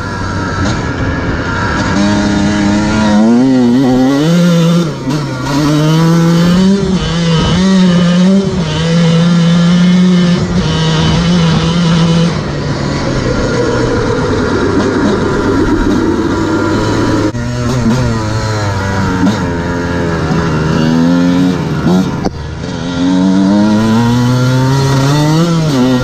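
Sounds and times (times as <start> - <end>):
dirt bike engine running: 0.0 - 26.0.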